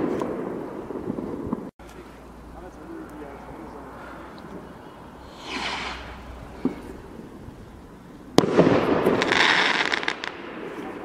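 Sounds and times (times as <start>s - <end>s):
crackling burst: 0.0s - 11.0s
firework rocket whoosh: 4.6s - 11.0s
firework bang: 5.2s - 7.7s, 8.3s - 11.0s.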